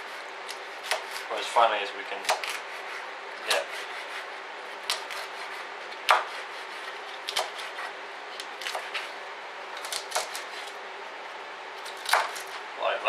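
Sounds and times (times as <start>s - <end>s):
extractor fan hum: 0.0s - 13.0s
knife chopping on plastic board: 0.5s - 1.2s, 2.2s - 2.6s, 4.8s - 9.1s, 11.8s - 12.5s.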